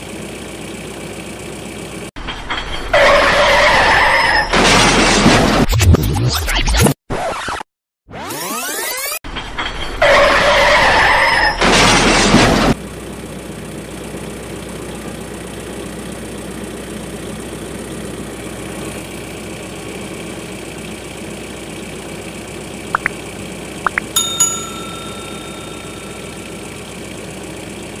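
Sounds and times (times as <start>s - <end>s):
engine-like drone: 12.8s - 28.0s
bell ding: 23.9s - 26.8s.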